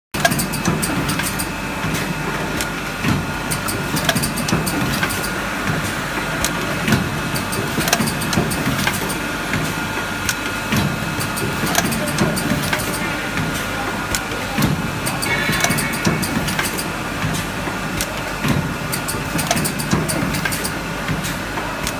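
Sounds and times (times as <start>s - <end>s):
machine humming: 0.2s - 21.9s
mechanical clicks and clacks: 0.2s - 21.9s
machine whining tones: 11.1s - 17.2s.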